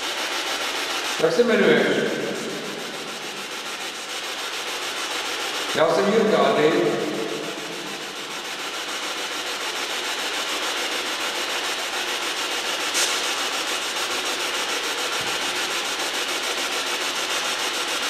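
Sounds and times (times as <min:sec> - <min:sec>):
pulsing static hiss from loudspeaker: 0:00.0 - 0:15.8.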